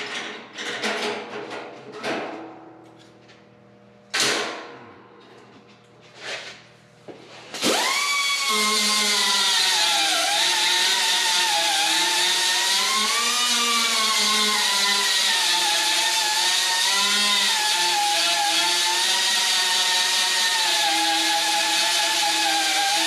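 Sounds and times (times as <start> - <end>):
air grinder whining on steel: 7.6 - 23.0.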